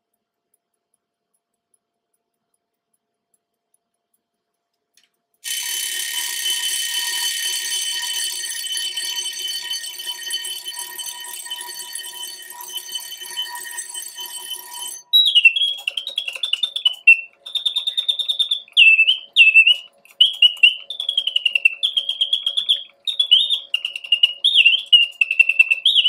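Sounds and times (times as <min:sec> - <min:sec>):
mechanical bird song whistling: 0:05.5 - 0:26.0.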